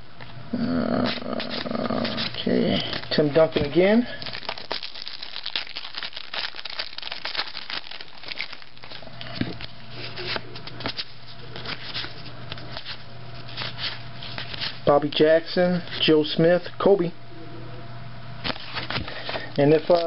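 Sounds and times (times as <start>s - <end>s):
low steady hum: 0.0s - 20.0s
cards rustling: 1.1s - 14.8s
foil wrapper crinkling and tearing: 1.5s - 14.9s.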